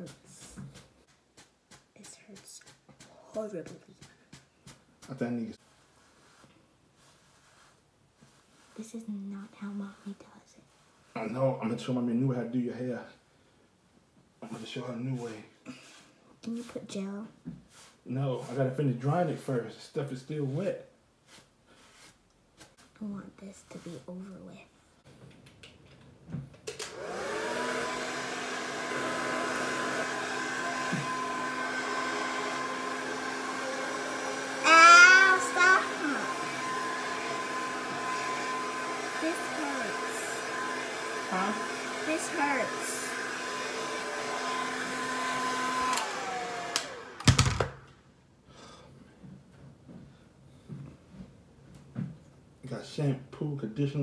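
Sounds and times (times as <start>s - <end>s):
hair dryer blowing: 26.7s - 47.9s
hair dryer switch click: 45.8s - 47.7s.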